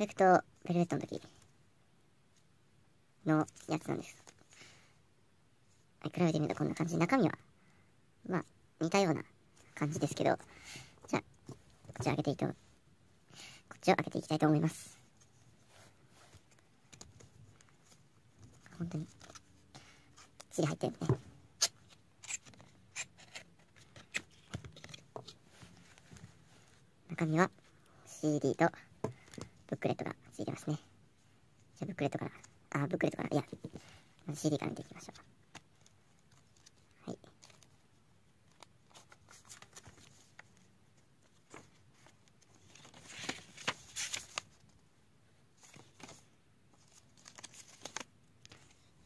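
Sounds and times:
paper rustling and page flicks: 41.4 - 44.7, 45.6 - 48.8.

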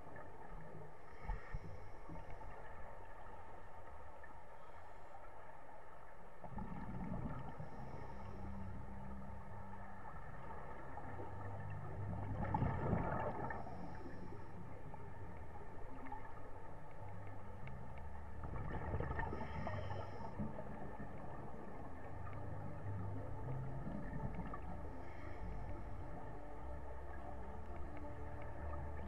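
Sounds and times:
steady low rumble: 0.0 - 29.0
exhaled bubbles gurgling: 6.4 - 29.0.

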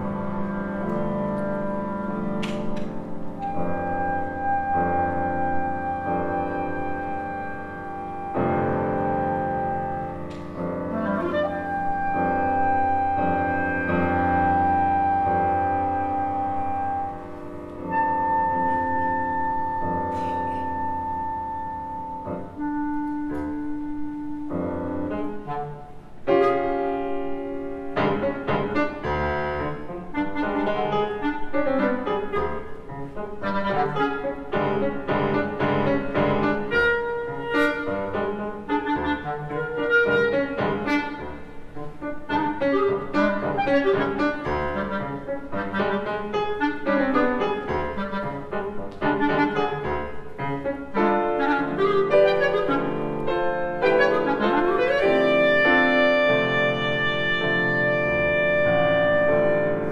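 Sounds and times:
instrumental ensemble playing: 0.0 - 59.9.

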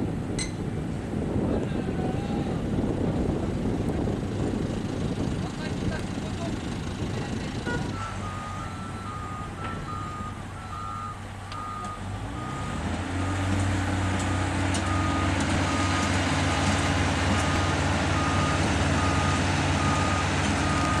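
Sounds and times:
heavy diesel engine running: 2.6 - 21.0
reversing alarm beeping: 7.9 - 13.5, 14.8 - 16.2, 17.4 - 21.0.

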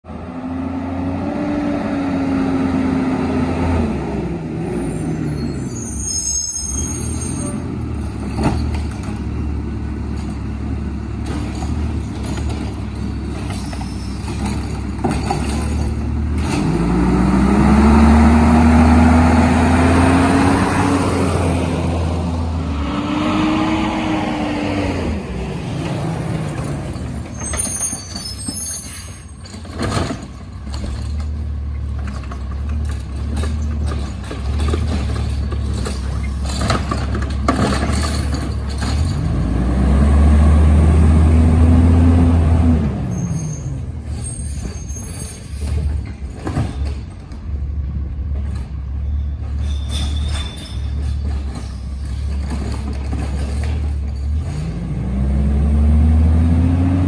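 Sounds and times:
garbage truck engine revving: 15.4 - 27.2.

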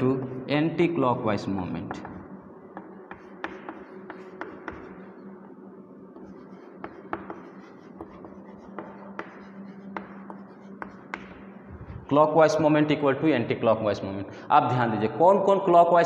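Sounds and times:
chalk writing on chalkboard: 1.9 - 11.7.

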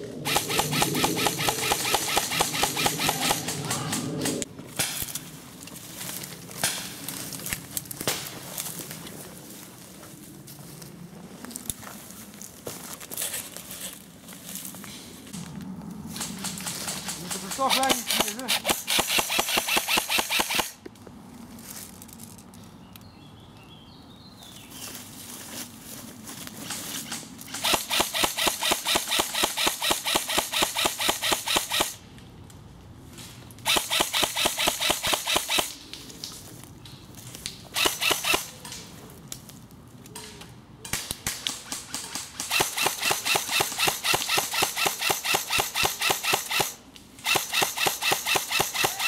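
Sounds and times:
airsoft gun firing bursts: 0.2 - 4.4, 16.6 - 20.8, 27.5 - 32.0, 33.6 - 35.7, 37.8 - 38.5, 41.5 - 49.0.

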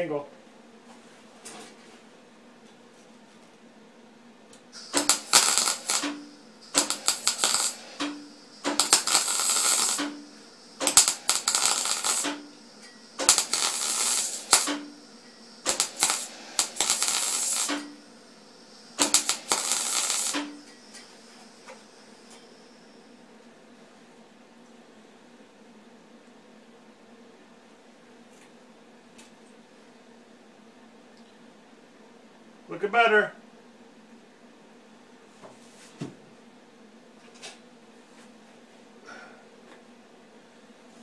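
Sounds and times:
welding arc crackling: 4.7 - 22.8.

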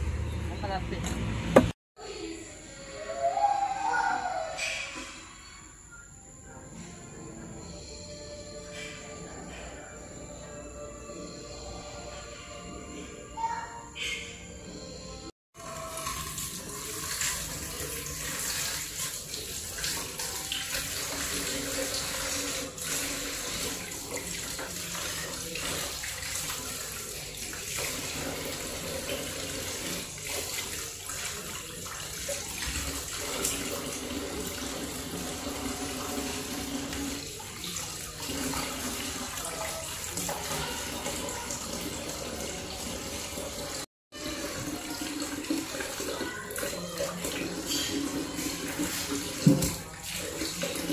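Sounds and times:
kitchen tap running water: 15.6 - 50.9.

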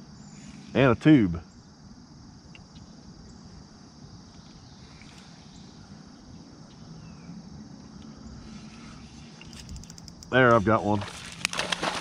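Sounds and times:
insects droning: 0.0 - 12.0
faint ticks: 9.4 - 10.5.

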